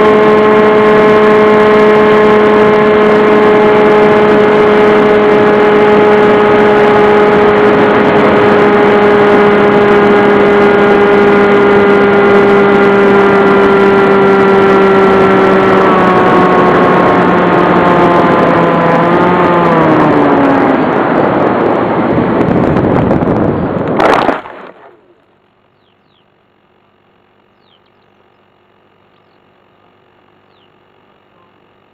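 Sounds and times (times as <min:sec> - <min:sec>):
model aircraft motor and propeller: 0:00.0 - 0:21.0.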